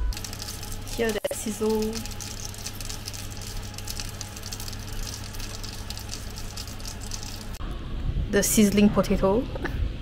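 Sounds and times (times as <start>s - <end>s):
potato sizzling and crackling: 0.0s - 7.6s
oven fan hum: 0.0s - 10.0s.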